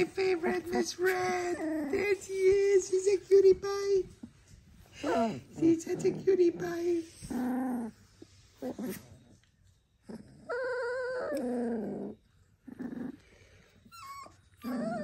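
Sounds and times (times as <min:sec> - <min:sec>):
puppies whimpering and yelping: 0:10.0 - 0:12.2, 0:13.9 - 0:15.0.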